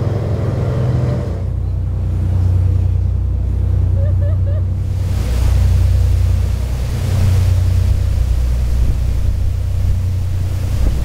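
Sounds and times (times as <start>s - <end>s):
churning wake rushing: 0.0s - 11.0s
ferry engines droning: 0.0s - 11.0s.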